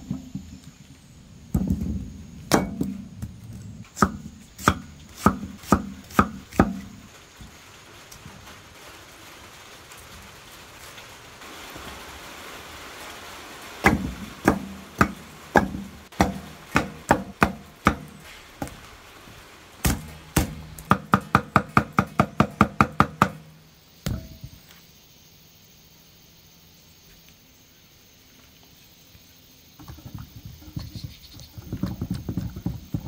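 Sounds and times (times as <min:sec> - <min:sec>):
faint steady hiss: 0:00.0 - 0:33.0
cleaver chopping on wooden block: 0:04.0 - 0:06.8, 0:13.9 - 0:18.8.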